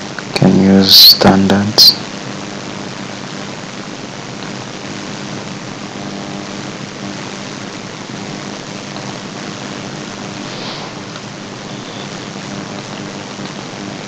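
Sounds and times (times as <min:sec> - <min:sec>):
low even hum: 0:00.0 - 0:14.0
steady rushing noise: 0:10.0 - 0:13.3.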